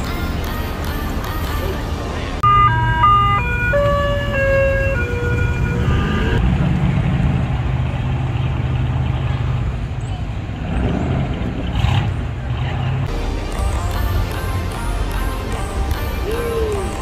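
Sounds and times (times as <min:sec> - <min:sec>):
car engines rumbling: 0:00.0 - 0:17.0
horn-like tune: 0:02.4 - 0:06.4.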